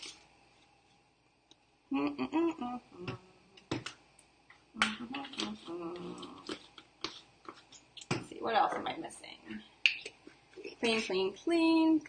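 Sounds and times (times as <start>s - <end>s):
woman humming: 1.9s - 3.6s, 4.8s - 6.6s.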